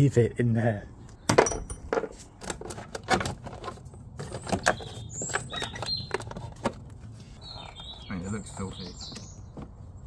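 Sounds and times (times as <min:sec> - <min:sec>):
metal tools clinking: 0:01.4 - 0:02.2.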